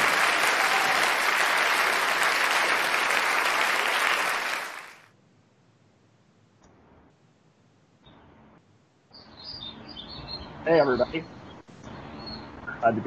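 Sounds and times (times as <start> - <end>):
applause: 0.0 - 5.1.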